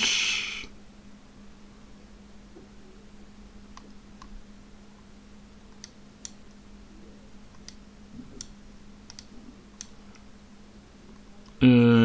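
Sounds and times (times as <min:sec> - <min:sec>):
faint low hum: 0:00.0 - 0:12.0
sharp computer clicks: 0:07.5 - 0:07.8, 0:08.4 - 0:10.2.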